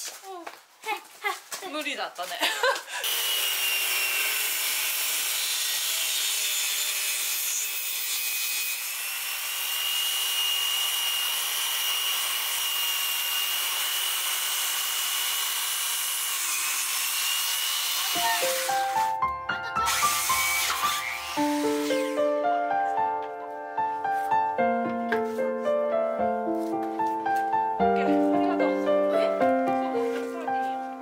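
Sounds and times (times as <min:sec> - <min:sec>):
circular saw cutting wood: 0:03.0 - 0:19.2, 0:19.8 - 0:22.3.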